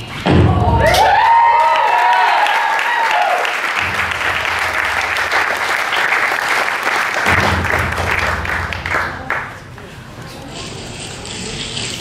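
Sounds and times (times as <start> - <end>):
audience applauding: 0.9 - 9.7.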